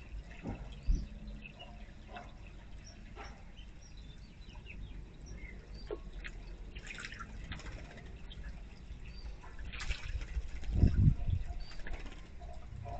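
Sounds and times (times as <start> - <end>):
fountain trickling and dripping: 0.0 - 12.9
bird splashing in water: 6.2 - 8.6, 9.5 - 11.0.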